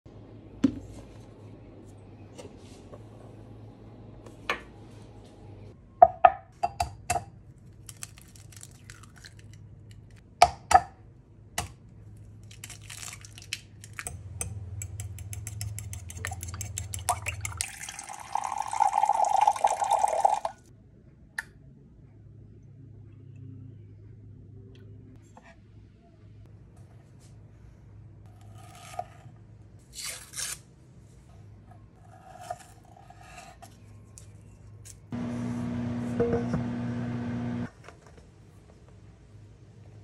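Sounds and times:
milk pouring into cup: 17.0 - 20.6.

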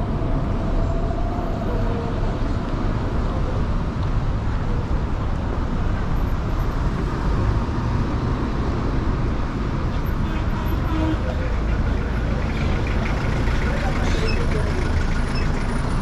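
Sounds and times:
rumble of engines and tyres: 0.0 - 16.0
cars driving past: 11.0 - 16.0.

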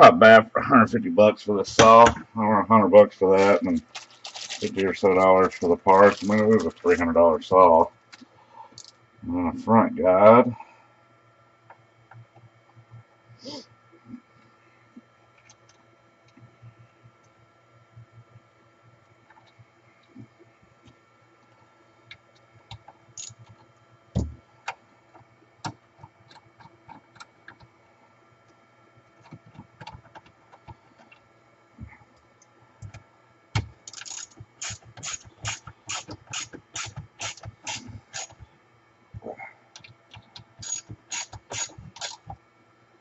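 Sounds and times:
ratchet clicking: 23.2 - 23.4, 33.9 - 38.4, 40.6 - 42.3.

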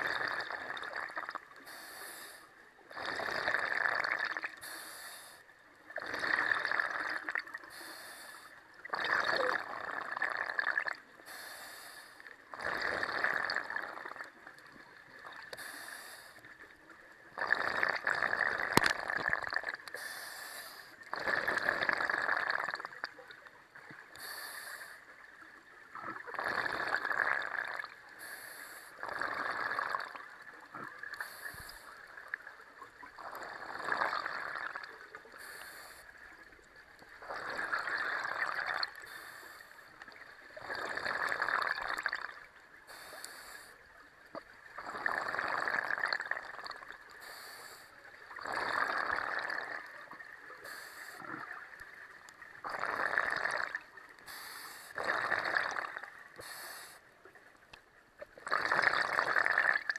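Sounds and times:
gurgling exhaled bubbles: 0.0 - 1.5, 2.9 - 4.6, 5.9 - 7.7, 8.8 - 11.1, 12.5 - 15.5, 17.3 - 20.0, 21.0 - 23.4, 25.2 - 28.0, 29.0 - 35.4, 36.4 - 39.0, 40.0 - 42.6, 44.4 - 47.0, 48.2 - 54.2, 54.9 - 56.4, 58.3 - 59.9
regulator inhalation hiss: 1.6 - 2.5, 4.6 - 5.4, 7.7 - 8.6, 11.3 - 12.2, 15.6 - 16.5, 19.9 - 21.0, 24.2 - 25.0, 28.2 - 29.0, 31.2 - 32.0, 35.3 - 36.1, 39.0 - 39.8, 42.9 - 43.8, 47.2 - 47.9, 50.6 - 51.2, 54.2 - 55.0, 56.4 - 57.1.

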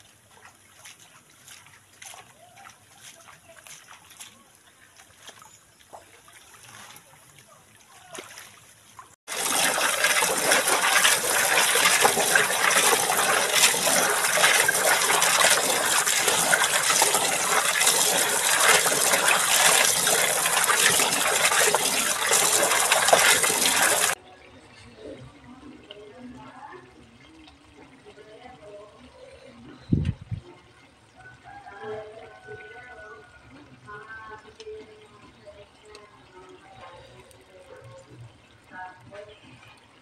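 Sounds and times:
churning gushing water: 0.0 - 24.2
faint water splashing: 0.0 - 40.0.

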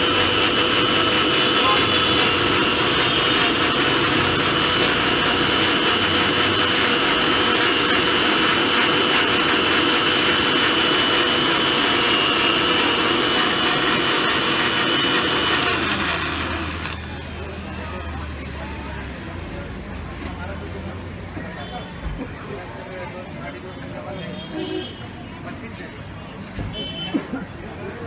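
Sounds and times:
blender motor whining: 0.0 - 19.5.

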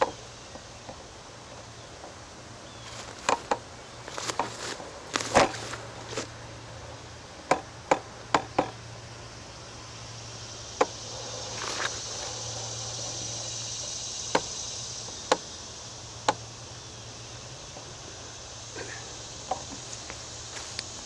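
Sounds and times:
sharp knocks and clicks: 3.2 - 4.6, 7.4 - 8.8.

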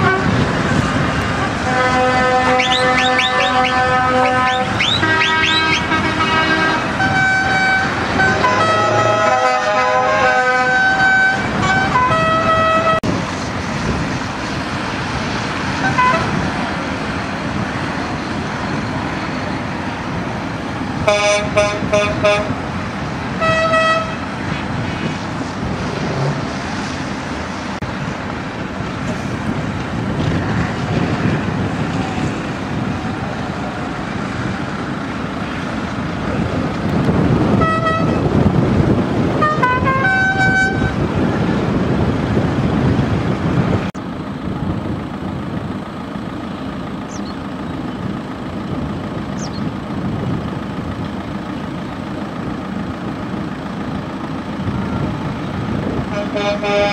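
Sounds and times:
truck horns tooting: 0.0 - 13.2, 15.8 - 16.5, 21.0 - 22.6, 23.3 - 24.4, 37.2 - 41.2, 55.8 - 56.9
trucks driving past: 0.0 - 56.9.

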